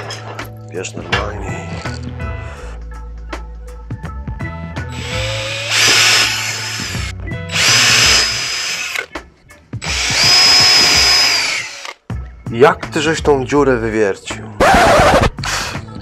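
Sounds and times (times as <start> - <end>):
cordless drill whining: 4.9 - 9.1, 9.8 - 12.0.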